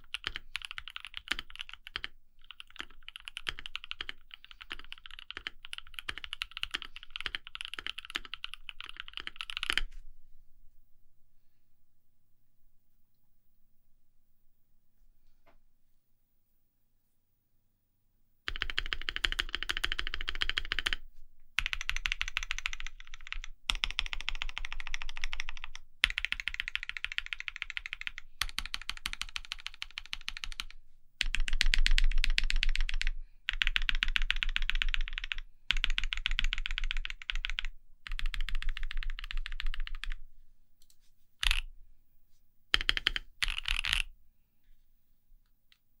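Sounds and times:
fast typing on mechanical keyboard: 0:00.0 - 0:09.9, 0:18.5 - 0:21.0, 0:21.6 - 0:40.2, 0:41.4 - 0:41.7, 0:42.7 - 0:44.1.

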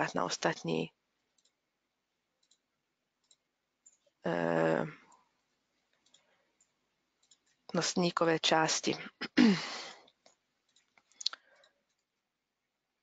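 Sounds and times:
computer mouse clicks: 0:01.2 - 0:01.6, 0:02.4 - 0:04.2, 0:05.9 - 0:07.7, 0:10.1 - 0:12.2.

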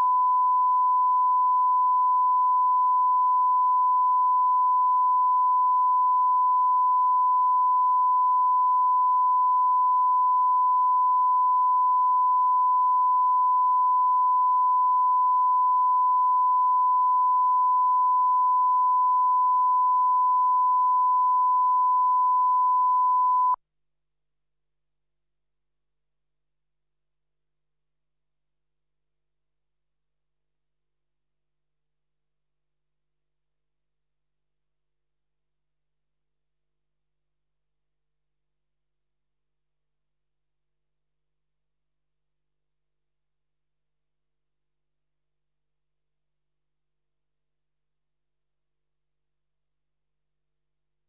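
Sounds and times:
steady test tone: 0:00.0 - 0:23.6.

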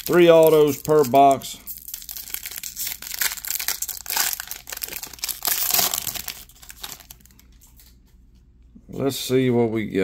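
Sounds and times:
wrapper crinkling and tearing: 0:00.0 - 0:08.0.

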